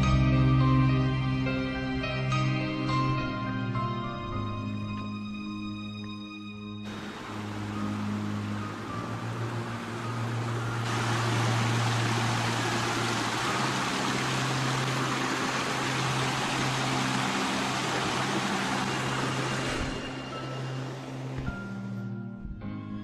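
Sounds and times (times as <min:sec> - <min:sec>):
low sustained music tones: 0:00.0 - 0:23.0
brook rushing over stones: 0:06.9 - 0:20.2.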